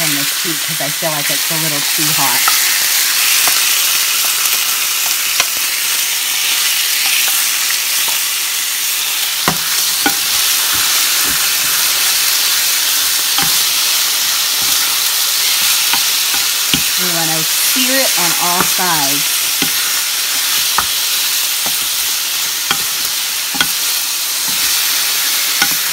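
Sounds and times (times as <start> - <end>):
chicken sizzling in a frying pan: 0.0 - 25.9
wooden spatula knocking on pan: 22.7 - 23.8.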